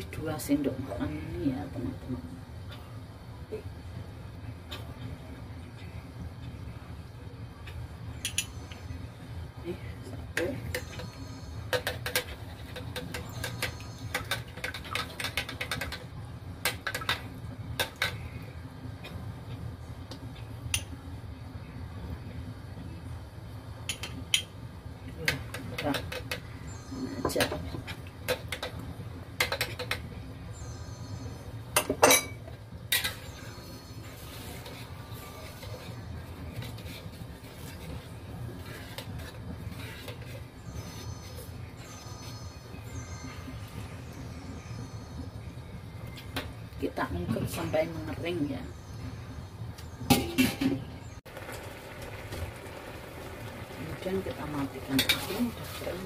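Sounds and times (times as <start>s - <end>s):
low steady hum: 0.0s - 56.0s
utensils clinking and scraping wok: 10.2s - 18.4s, 25.2s - 44.1s, 50.1s - 51.2s, 53.8s - 56.0s.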